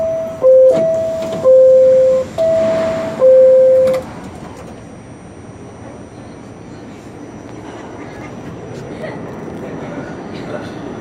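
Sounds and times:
two-tone door chime: 0:00.0 - 0:04.1
train doors sliding shut: 0:00.2 - 0:04.9.

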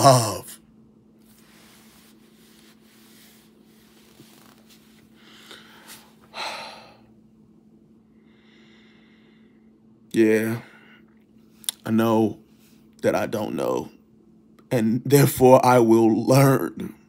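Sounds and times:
steady low hum: 0:00.0 - 0:17.0
clothing rustling: 0:01.2 - 0:06.3
person exhaling heavily: 0:05.2 - 0:07.1.

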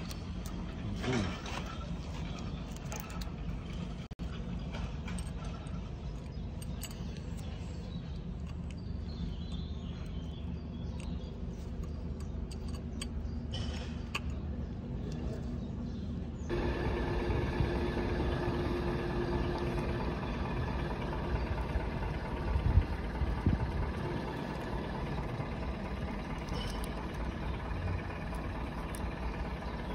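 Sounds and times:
engine rumble: 0:00.0 - 0:29.9
steady hum: 0:15.7 - 0:29.9.

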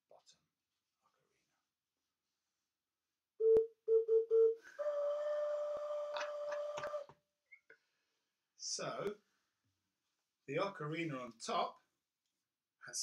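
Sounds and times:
low ocarina notes: 0:03.4 - 0:07.1.

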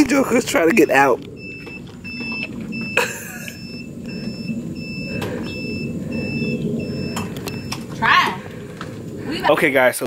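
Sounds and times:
reverse warning beeper: 0:00.0 - 0:08.0
low rumble: 0:00.0 - 0:10.0.

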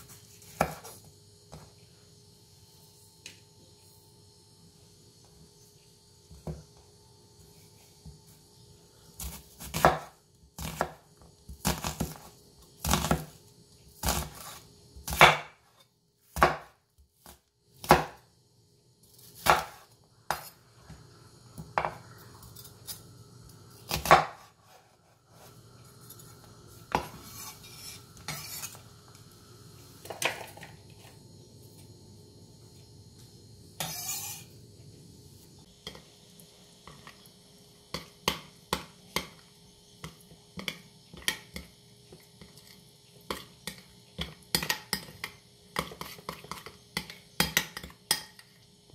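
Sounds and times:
knife chopping onion on board: 0:00.0 - 0:01.7, 0:09.2 - 0:13.4, 0:14.0 - 0:18.2, 0:19.2 - 0:20.6, 0:23.9 - 0:25.0
knife rasp: 0:27.1 - 0:28.8, 0:33.8 - 0:34.5.

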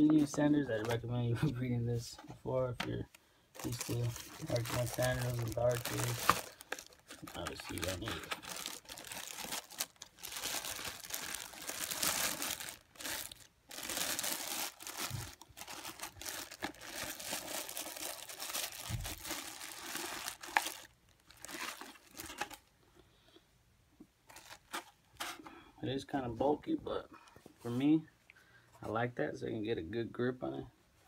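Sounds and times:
plastic wrapping crinkling: 0:03.6 - 0:22.7.

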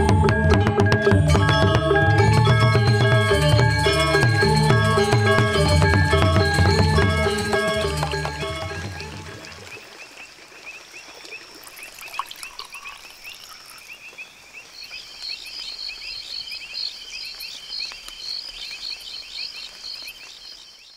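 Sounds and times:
frogs calling: 0:03.3 - 0:20.9
insects chirping: 0:06.8 - 0:20.9.

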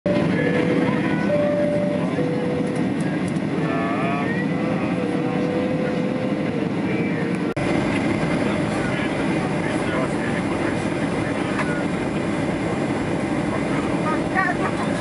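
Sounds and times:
jet cabin engine rush: 0:00.1 - 0:15.0
thin engine whine: 0:00.1 - 0:15.0.

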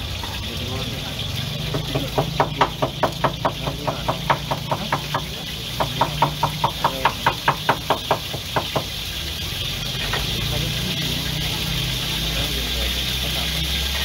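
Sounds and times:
utensil knocking fast: 0:01.5 - 0:09.1.

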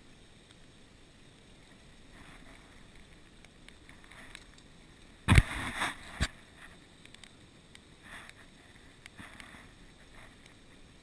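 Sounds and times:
faint steady hiss: 0:00.0 - 0:11.0
handling rustle: 0:01.6 - 0:11.0
thump on microphone: 0:05.3 - 0:06.0.

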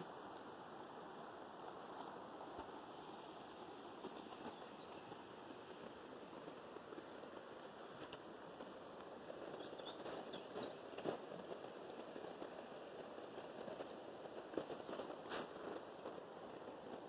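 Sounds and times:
river rushing: 0:00.0 - 0:09.8.

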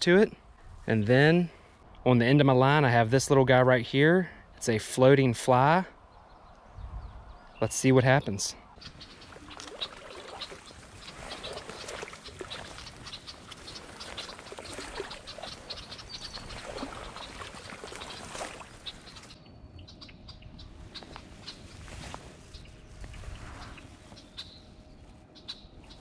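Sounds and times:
cattail leaves rustling: 0:08.8 - 0:19.4, 0:20.8 - 0:24.6.

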